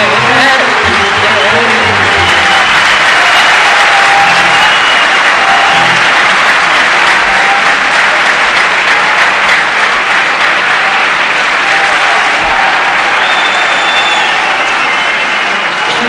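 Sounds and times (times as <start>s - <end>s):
faint instrument notes: 0.0s - 2.8s, 5.4s - 6.2s
audience applauding: 0.0s - 16.0s.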